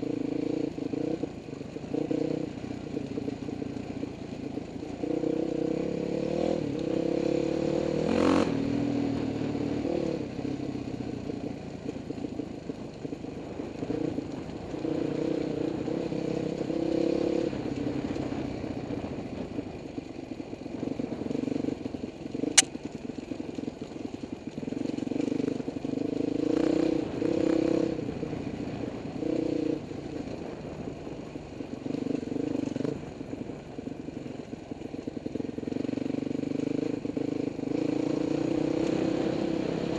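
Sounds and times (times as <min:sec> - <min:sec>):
dirt bike engine revving: 0:35.8 - 0:39.9.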